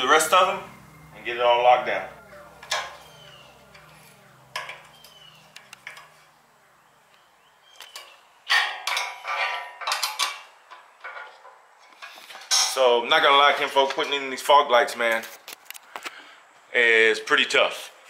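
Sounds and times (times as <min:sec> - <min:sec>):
metal tools clinking on bolts: 0:07.9 - 0:12.8.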